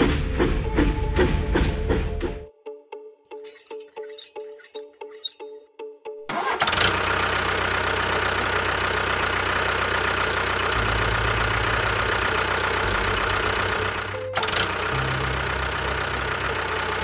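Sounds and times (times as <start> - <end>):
engine humming: 6.4 - 17.0.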